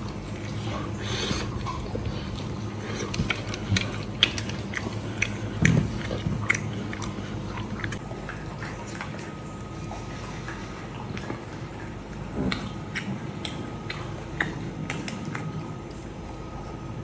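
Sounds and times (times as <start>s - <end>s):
person chewing meat: 0.0s - 17.0s
teeth clicks: 1.5s - 9.2s, 12.1s - 15.7s.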